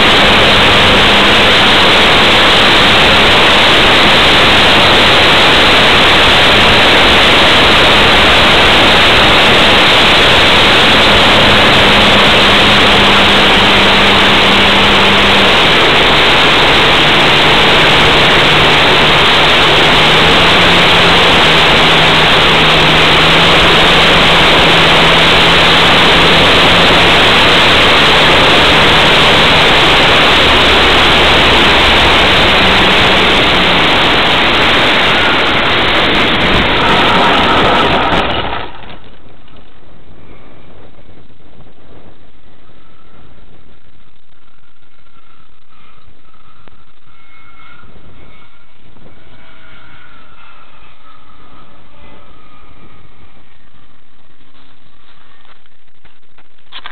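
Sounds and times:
wind rushing: 0:00.0 - 0:38.5
model plane engine droning: 0:00.0 - 0:56.9.

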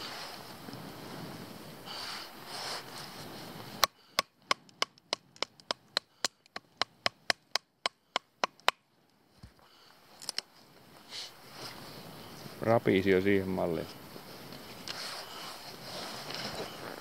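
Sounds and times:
knife chopping wood: 0:03.8 - 0:08.8.

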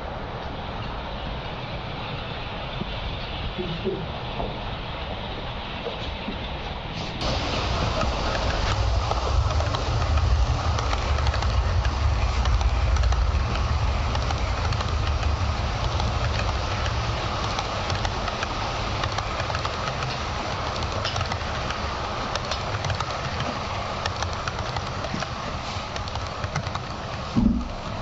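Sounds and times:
model train running: 0:06.7 - 0:28.0.

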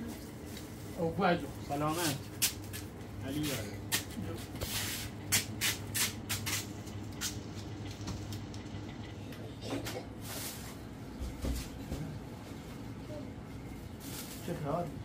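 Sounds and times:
steady low hum: 0:00.0 - 0:15.0
plastic bag rustling: 0:13.7 - 0:14.9.

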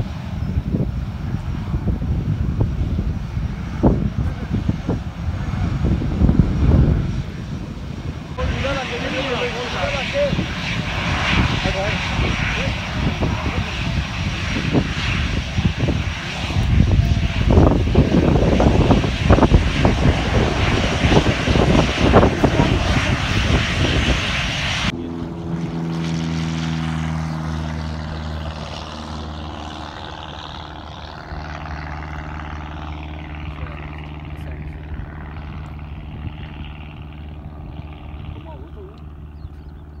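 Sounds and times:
jet engines rumbling: 0:00.0 - 0:40.0
propeller plane droning: 0:00.0 - 0:40.0.

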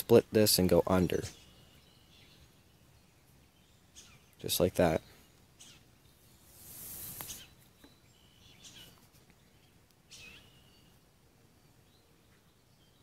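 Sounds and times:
faint bird chirps: 0:01.2 - 0:11.0, 0:11.6 - 0:13.0
cord rustling through a knot: 0:06.2 - 0:07.9.

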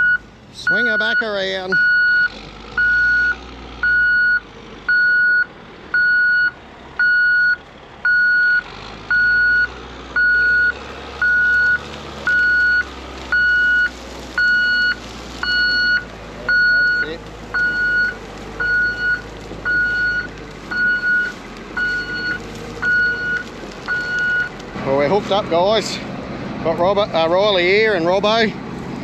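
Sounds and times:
truck reversing alarm beeping: 0:00.0 - 0:24.6
diesel engine running: 0:00.0 - 0:29.0.

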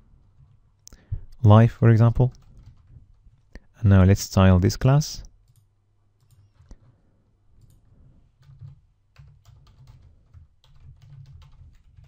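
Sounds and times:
keyboard typing clicks: 0:05.4 - 0:06.9, 0:07.6 - 0:07.8.

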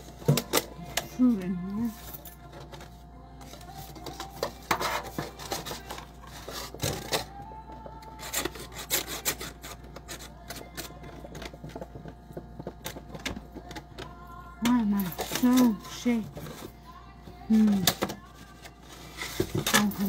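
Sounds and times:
plastic container crinkling and scraping: 0:01.9 - 0:07.4, 0:17.5 - 0:20.0.

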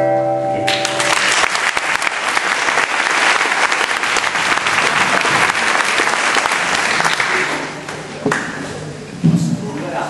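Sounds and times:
audience applauding: 0:00.7 - 0:08.5.

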